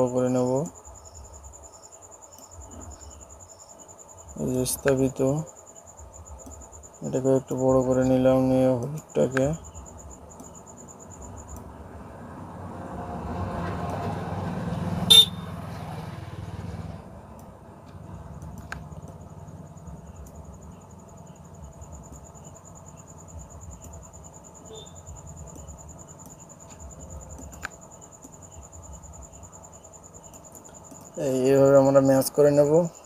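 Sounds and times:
high insect trill: 0.0 - 17.0, 18.1 - 33.0
vehicle rumble: 9.4 - 31.4
low steady hum: 16.8 - 33.0.

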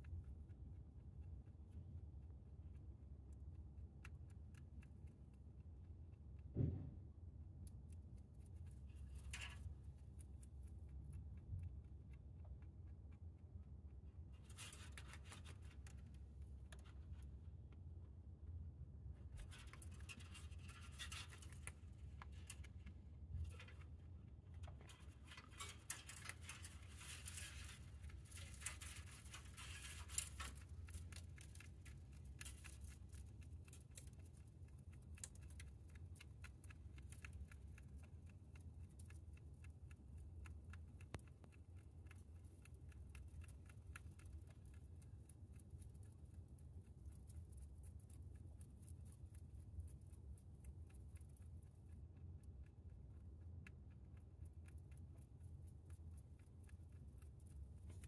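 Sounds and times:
rabbit chewing hay: 0.0 - 58.0.

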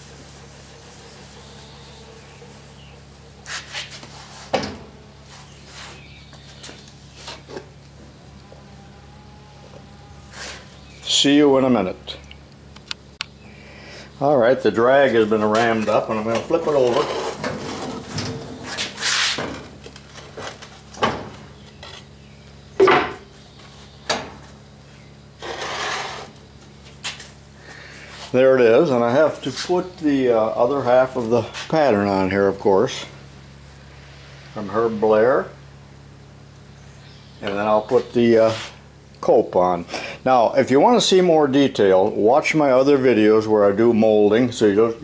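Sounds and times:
steady low hum: 0.0 - 45.0
short scrape: 3.4 - 4.6, 10.3 - 10.7, 18.6 - 19.4, 25.4 - 26.4
wooden and metal clunks: 20.3 - 22.0.

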